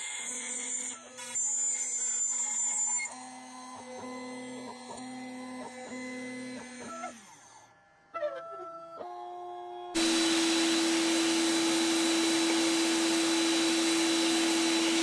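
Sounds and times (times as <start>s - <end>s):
router spindle whine: 0.0s - 8.1s, 8.8s - 15.0s
stepper motors humming tones: 10.0s - 15.0s.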